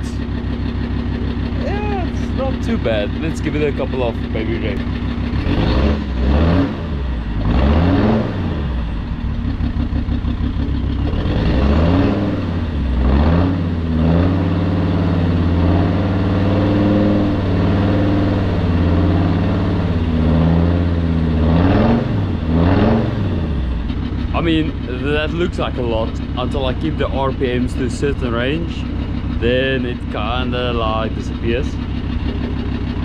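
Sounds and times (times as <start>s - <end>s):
diesel engine revving: 0.0s - 33.0s.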